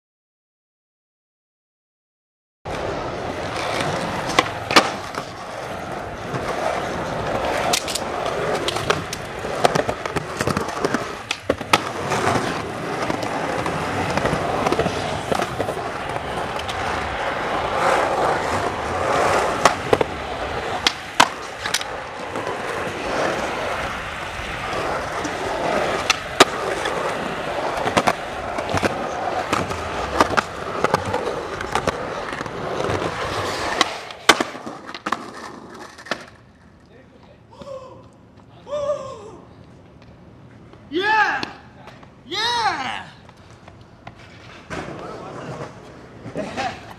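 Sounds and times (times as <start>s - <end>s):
skateboard wheels rolling on concrete: 2.7s - 46.9s
skateboard clacks popping and landing: 3.5s - 5.5s, 6.2s - 16.9s, 18.4s - 23.8s, 24.8s - 36.4s.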